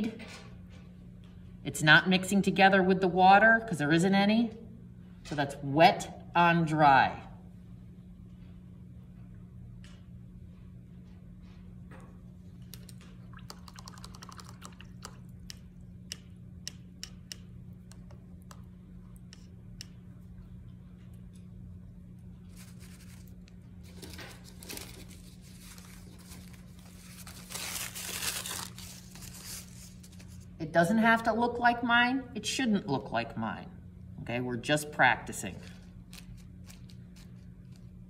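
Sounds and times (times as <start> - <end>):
paper towel crinkling: 22.4 - 30.5.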